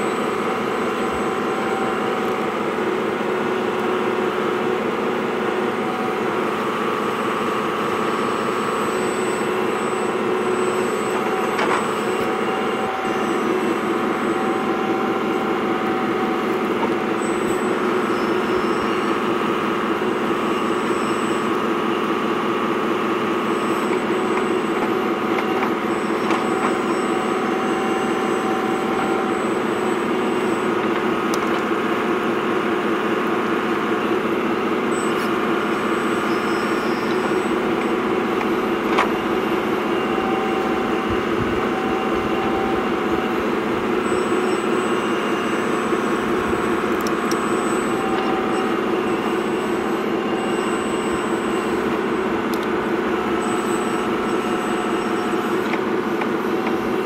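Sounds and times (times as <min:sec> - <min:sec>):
toy excavator mechanical whine: 0:00.0 - 0:57.0.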